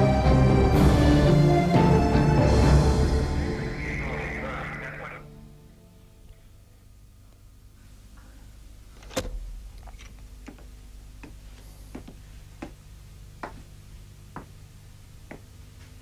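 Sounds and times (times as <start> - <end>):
low steady hum: 3.4 - 16.0
footsteps on hard floor: 9.8 - 14.6, 15.2 - 16.0.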